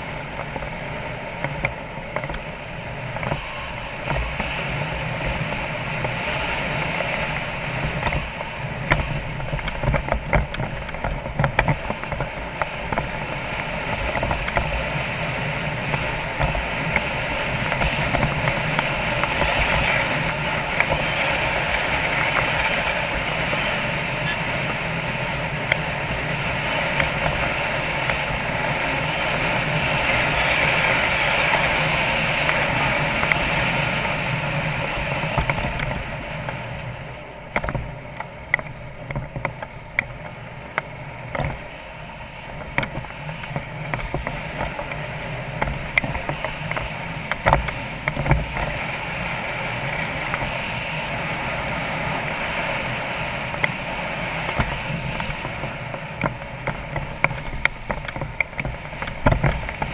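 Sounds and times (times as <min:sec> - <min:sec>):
motorcycle engine running: 0:00.0 - 0:59.9
wind and road noise: 0:00.0 - 0:59.9
sharp clicks and knocks: 0:08.0 - 0:13.2, 0:37.5 - 0:41.6, 0:45.6 - 0:48.7, 0:54.5 - 0:59.9.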